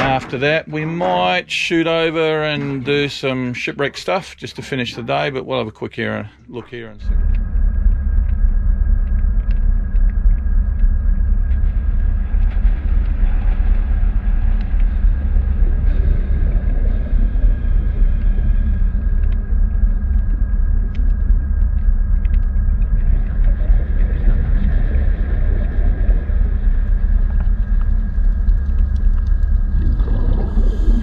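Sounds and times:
faint clicks: 6.6s - 15.2s, 16.6s - 24.7s, 25.6s - 30.5s
thin whine: 6.7s - 31.0s
low motor rumble: 6.8s - 31.0s.

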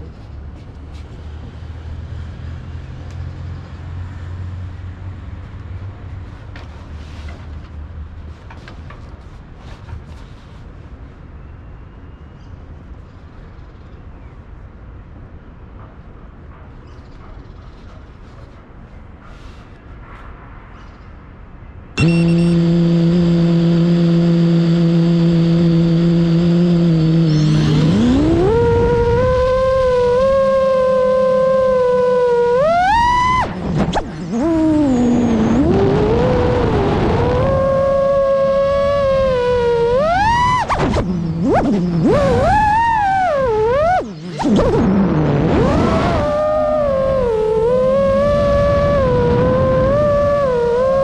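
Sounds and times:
distant city traffic rumble: 0.0s - 22.0s
drone motors spinning: 22.0s - 51.0s.

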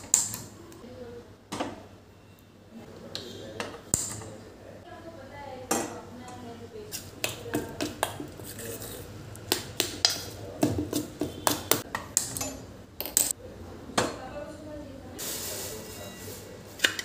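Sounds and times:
spoon scraping steel bowl: 8.3s - 9.1s.

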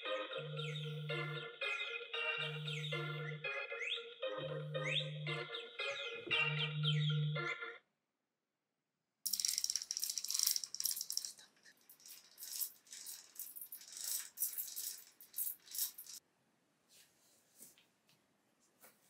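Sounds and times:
metal bead chain rattling: 9.3s - 16.2s.

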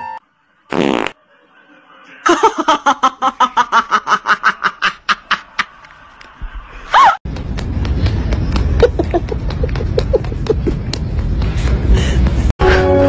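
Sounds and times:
person laughing: 2.3s - 5.8s, 8.7s - 10.9s.

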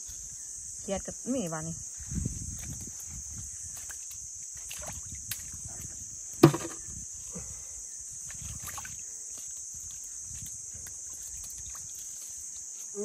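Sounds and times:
crickets chirping: 0.0s - 13.0s
water sloshing and splashing: 3.7s - 5.8s, 6.4s - 6.8s, 8.2s - 12.6s
sharp thump: 6.4s - 6.8s.

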